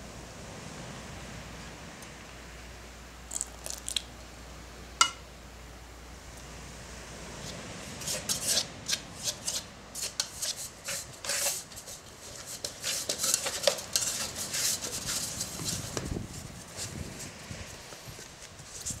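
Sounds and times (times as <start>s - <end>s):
hands scraping dough in metal pot: 8.0s - 17.3s.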